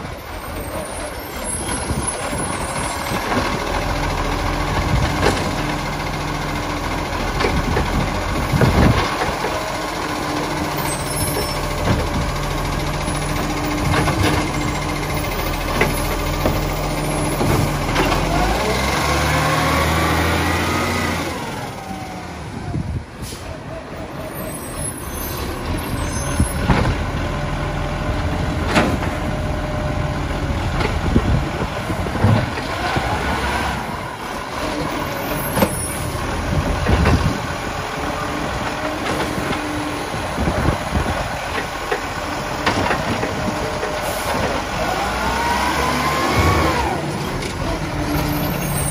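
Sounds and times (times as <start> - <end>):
garbage truck engine running: 0.0 - 48.9
air brake hisses: 23.2 - 23.6.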